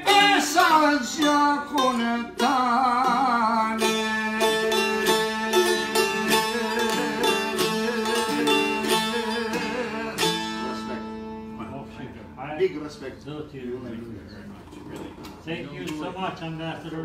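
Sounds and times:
man folk singing: 0.0s - 11.6s
plucked lute with drone: 0.0s - 12.2s.

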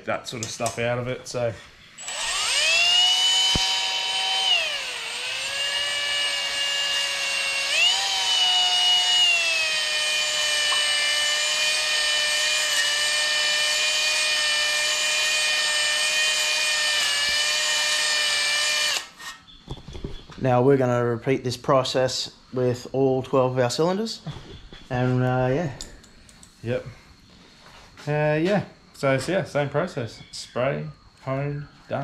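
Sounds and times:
power drill motor whine: 2.0s - 19.3s.

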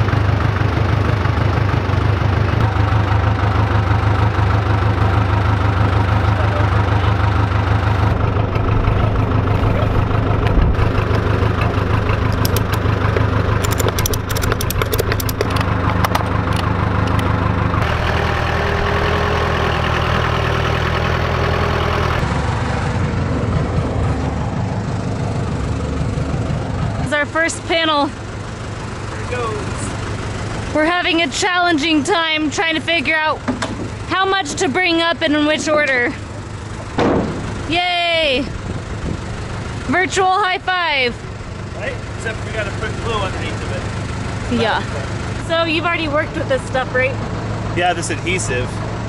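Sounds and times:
diesel engine droning: 0.0s - 49.0s
clicks and rattles: 10.4s - 17.3s.

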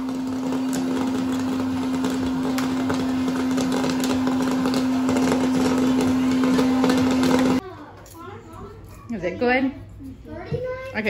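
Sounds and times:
popcorn popper motor and fan hum: 0.0s - 8.2s.

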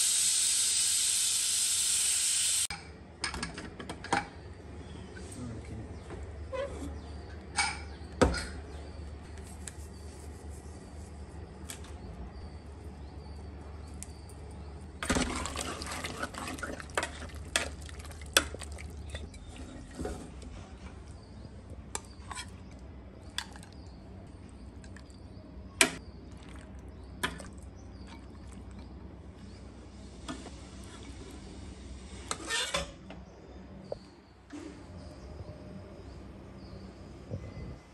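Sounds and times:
metal spoon scraping a pot: 32.3s - 32.9s.

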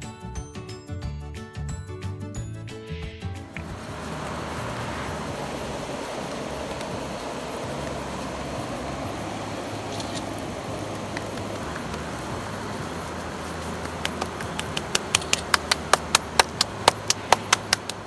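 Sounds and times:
background music with stepping bass: 0.0s - 4.8s.

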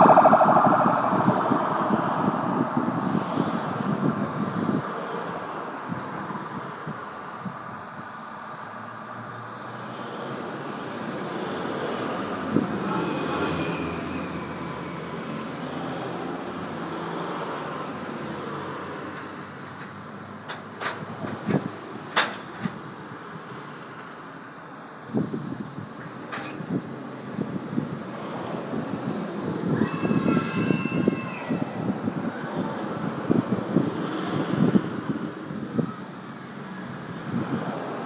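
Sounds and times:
vehicle driving past: 0.0s - 4.2s.

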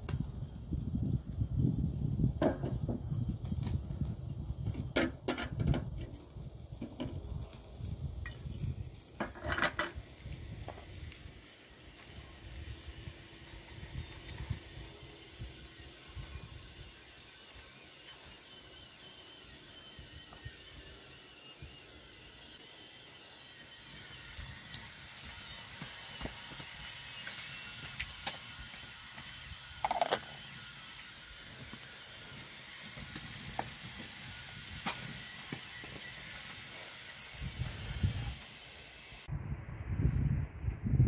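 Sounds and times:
low rumble: 39.3s - 41.0s.

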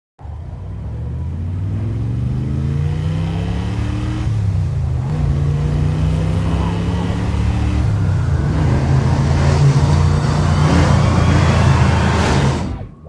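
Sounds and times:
car engine revving: 0.2s - 13.0s.

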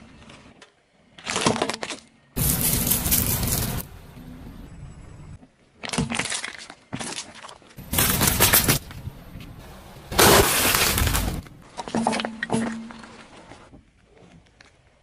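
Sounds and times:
tyre crushing brittle objects: 1.2s - 3.9s, 5.8s - 9.1s, 10.1s - 13.4s.

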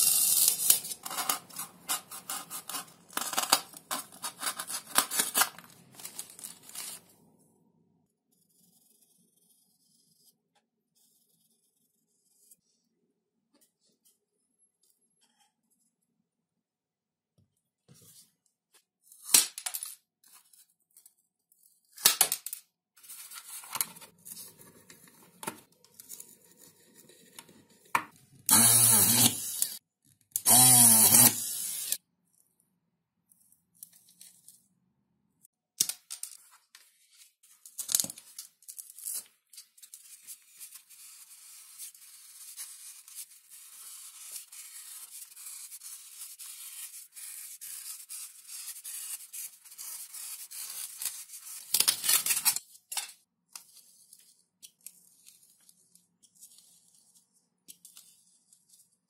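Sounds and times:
rotary tool drilling wood: 28.5s - 29.8s, 30.4s - 32.0s.

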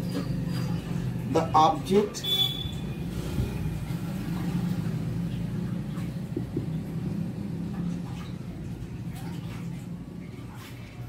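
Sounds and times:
motor hum: 2.8s - 10.6s.

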